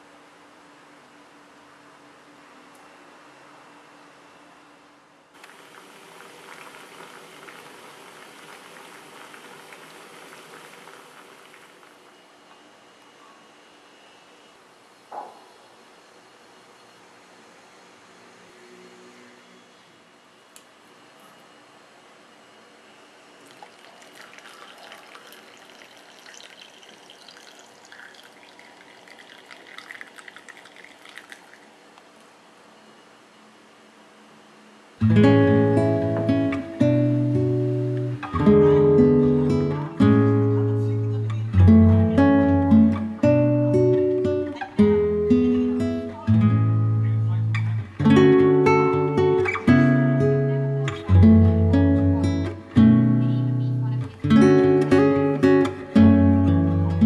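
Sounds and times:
tea boiling hard: 5.4 - 12.1, 23.4 - 32.2.

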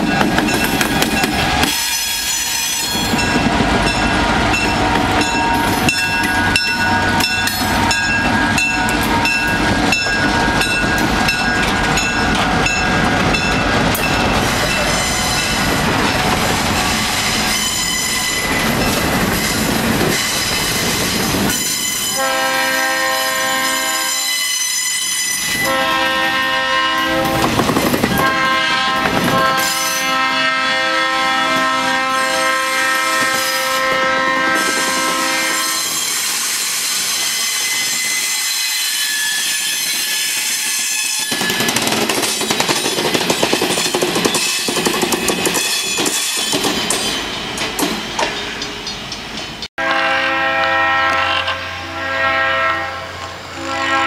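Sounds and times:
freight train passing: 0.0 - 54.0
train horn blasts: 21.6 - 36.1, 49.8 - 54.0
wheels clicking over rail joints: 27.2 - 28.3.

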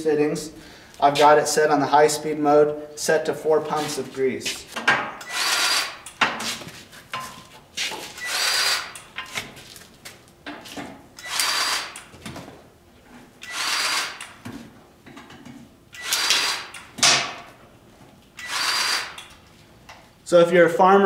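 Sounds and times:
cordless grease gun running: 5.2 - 6.0, 8.2 - 9.0, 11.2 - 12.0, 13.4 - 14.3, 16.0 - 16.8, 18.4 - 19.3.

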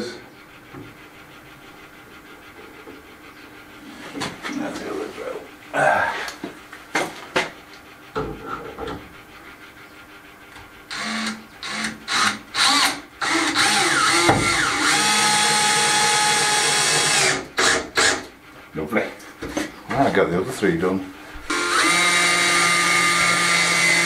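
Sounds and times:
cordless drill driving screw into wood: 10.9 - 18.3, 21.5 - 24.0.

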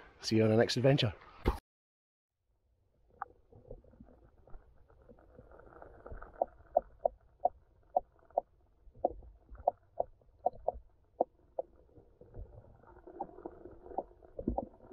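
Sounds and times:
muffled underwater water rumble: 3.0 - 14.9.

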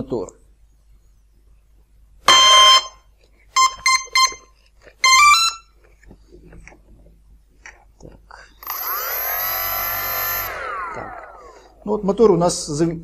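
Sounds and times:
motor controller beeps: 8.6 - 11.2.

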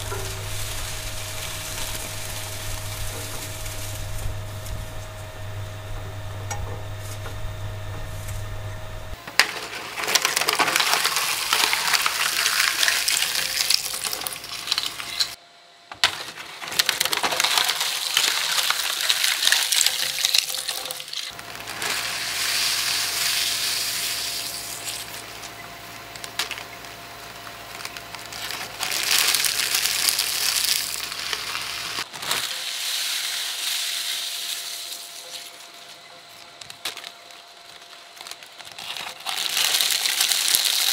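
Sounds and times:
shredder motor hum: 0.0 - 15.4, 16.1 - 32.9
snack foods crunching in shredder: 9.4 - 15.4, 16.1 - 25.5, 26.1 - 40.9.

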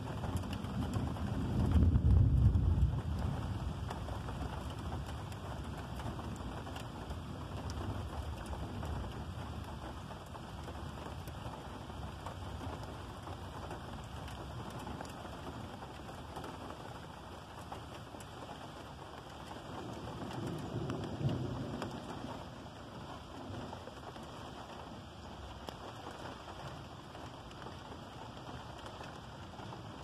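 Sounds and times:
steady rain falling: 0.0 - 30.0
thunder rumbling: 0.2 - 10.1, 19.6 - 24.2.

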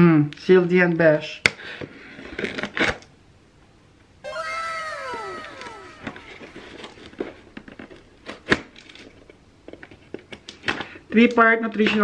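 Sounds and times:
drawn-out falling cry: 4.2 - 7.1.

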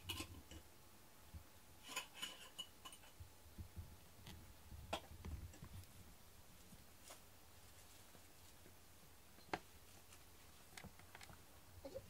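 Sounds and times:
faint clicks and taps: 9.4 - 11.4.

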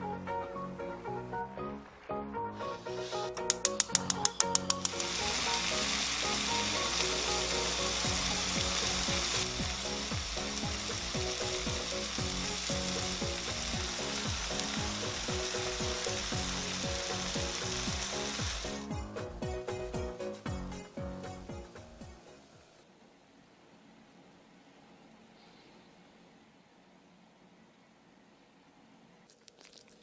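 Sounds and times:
food sizzling on hot plate: 3.0 - 18.9
gas stove igniter ticking: 3.4 - 18.4.

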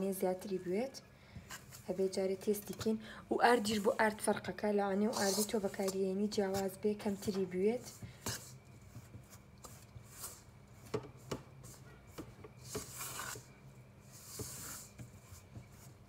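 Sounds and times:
spoon scraping bowl: 4.9 - 11.9, 12.5 - 16.0.

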